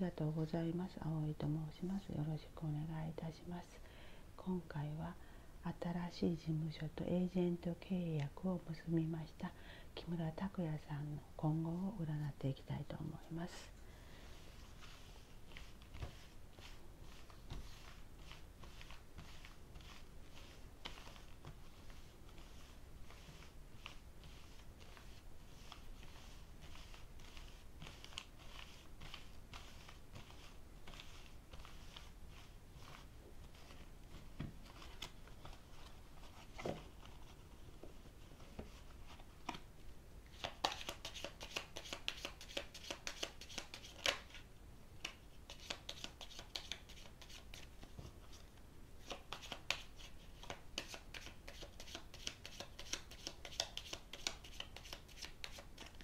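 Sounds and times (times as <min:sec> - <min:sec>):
cards sliding on a table mat: 0:14.1 - 0:39.6
cards shuffling clicks: 0:40.3 - 0:44.4, 0:45.0 - 0:47.7, 0:49.0 - 0:56.0.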